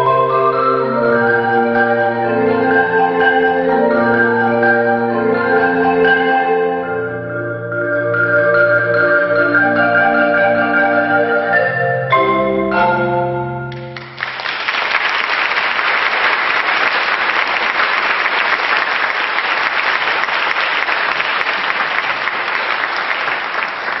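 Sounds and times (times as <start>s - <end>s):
marimba chord ringing: 0.0s - 14.2s
audience applauding: 13.7s - 24.0s.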